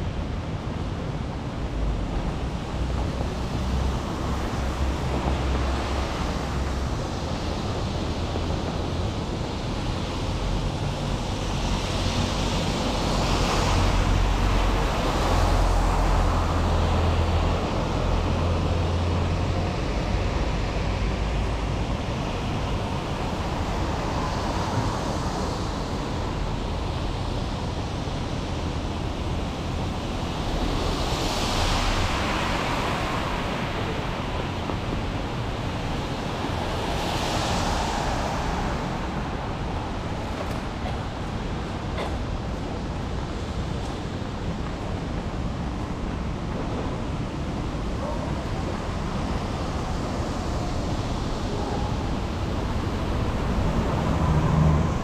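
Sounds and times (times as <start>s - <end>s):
rain: 0.0s - 55.0s
tyres hissing on wet road: 1.8s - 55.0s
heavy vehicle rumble: 29.3s - 55.0s.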